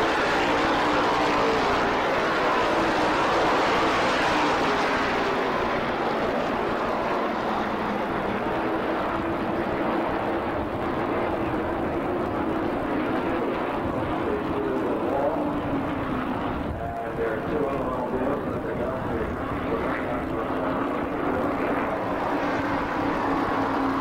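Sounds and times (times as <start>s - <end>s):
race car engines droning: 0.0s - 24.0s.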